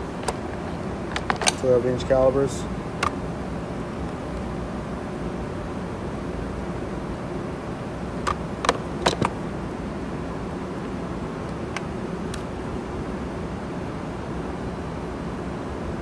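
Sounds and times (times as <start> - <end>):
steady background hum: 0.0 - 16.0
plastic case clicks and knocks: 0.2 - 0.5, 1.1 - 1.6, 8.3 - 9.4.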